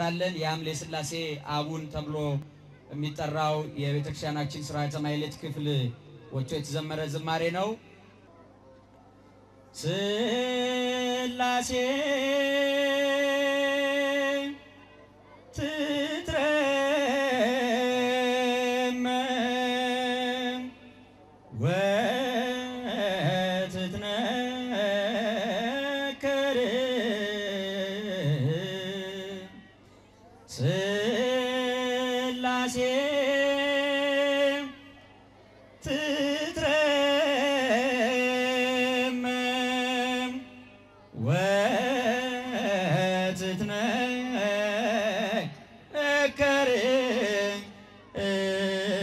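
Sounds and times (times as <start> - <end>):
man singing a hymn: 9.8 - 14.7, 15.6 - 20.8, 21.6 - 29.7, 30.5 - 34.9, 35.8 - 40.6, 41.2 - 49.0.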